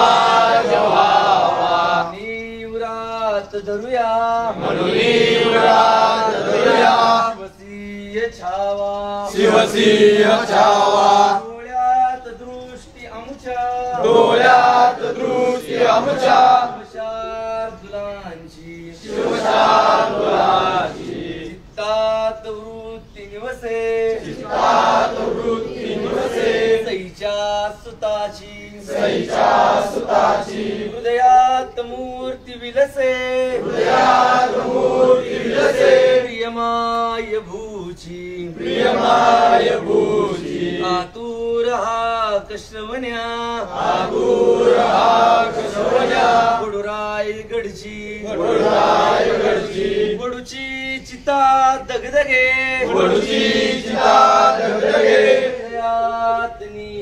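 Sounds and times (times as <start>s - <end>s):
group of men chanting: 0.0s - 2.3s, 4.4s - 7.5s, 9.2s - 11.5s, 13.9s - 17.7s, 18.8s - 21.9s, 23.7s - 27.0s, 28.7s - 31.3s, 33.2s - 36.6s, 38.1s - 41.2s, 43.6s - 46.8s, 47.8s - 50.4s, 52.8s - 56.5s
single voice singing: 0.0s - 57.0s.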